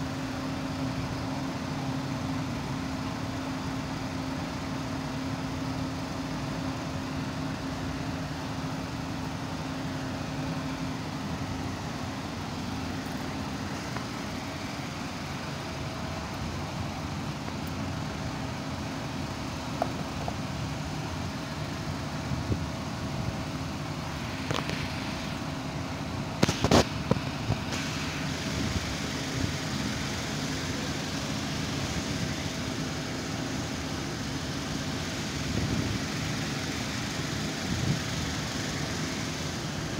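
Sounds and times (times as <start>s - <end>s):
low mechanical hum: 0.0s - 39.9s.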